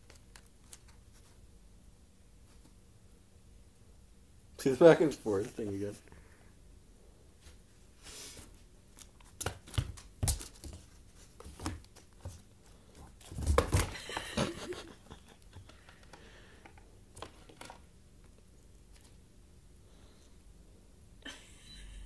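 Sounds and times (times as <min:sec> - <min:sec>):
kitten paws thumping and scratching: 0:09.0 - 0:16.2.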